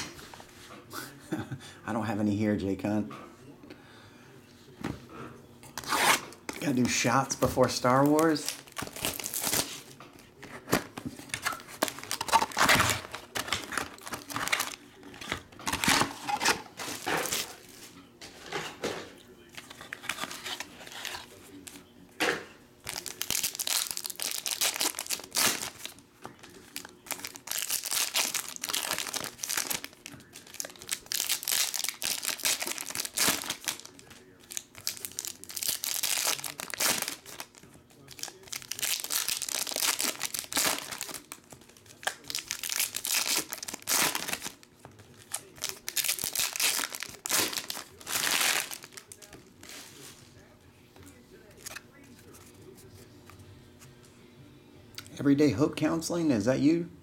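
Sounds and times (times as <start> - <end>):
foil wrappers tearing and crinkling: 5.8 - 9.9, 11.2 - 17.7, 22.8 - 50.2.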